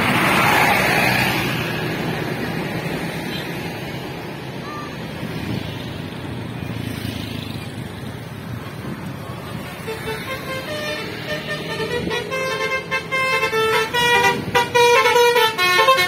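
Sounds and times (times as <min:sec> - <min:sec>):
scooters passing: 0:00.0 - 0:12.4
street traffic: 0:00.0 - 0:16.0.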